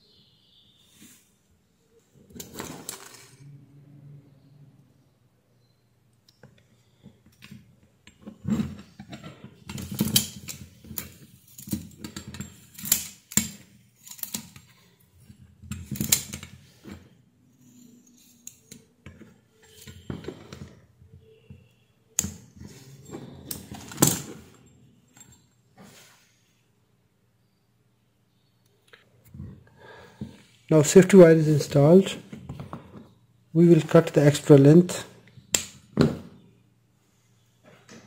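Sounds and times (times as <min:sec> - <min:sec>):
pliers and wire clinking on metal: 0:06.2 - 0:25.6.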